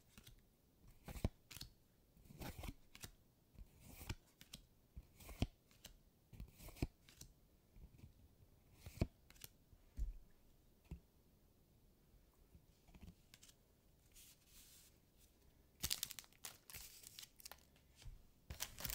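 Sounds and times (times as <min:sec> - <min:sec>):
cards sliding and tapping: 0:01.0 - 0:01.7, 0:02.3 - 0:03.1, 0:03.8 - 0:07.3, 0:08.8 - 0:09.5, 0:12.9 - 0:14.9
cards rustling on a mat: 0:06.6 - 0:07.3, 0:12.9 - 0:18.9.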